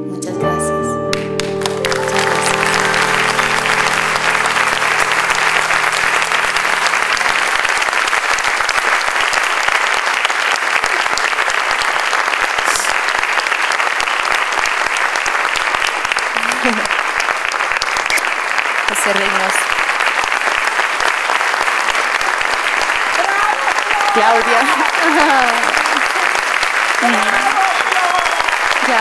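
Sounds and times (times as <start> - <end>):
piano notes ringing: 0.0 - 8.6
audience applauding: 1.1 - 29.0.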